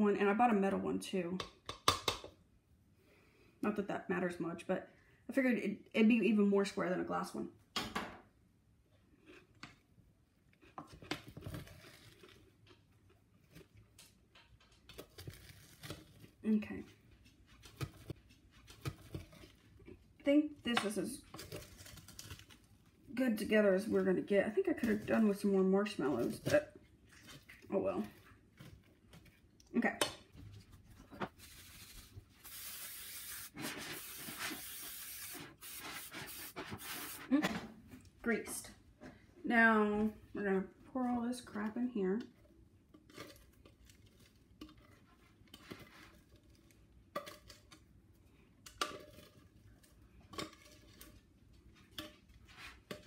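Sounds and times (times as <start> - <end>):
spoon scraping sticky mix in pot: 14.6 - 20.2, 30.4 - 37.3, 41.4 - 47.9, 48.7 - 53.0
aerosol spray hissing: 32.4 - 37.2.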